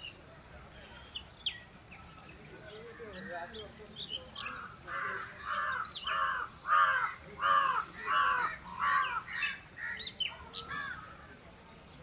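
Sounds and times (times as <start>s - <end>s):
small birds chirping: 0.0s - 12.0s
crow cawing: 4.4s - 11.2s.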